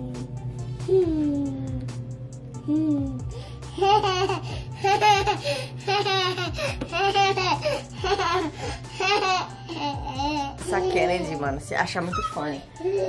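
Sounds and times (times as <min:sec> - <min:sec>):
toddler girl laughing: 0:03.7 - 0:10.6.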